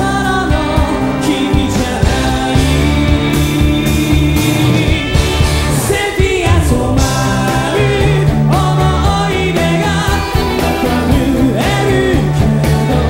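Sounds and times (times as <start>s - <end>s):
male lead vocal singing: 0.0s - 13.0s
rock band playing live: 0.0s - 13.0s.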